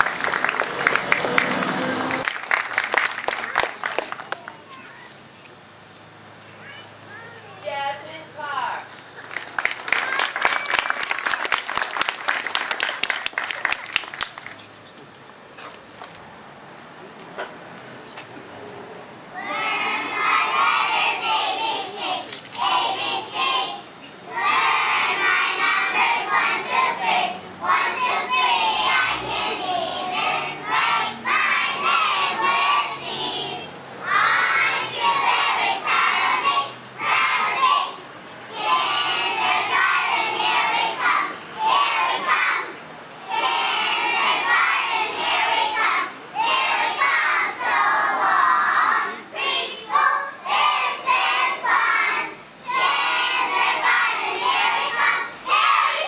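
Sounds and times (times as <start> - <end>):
children singing unaccompanied: 19.3 - 56.0.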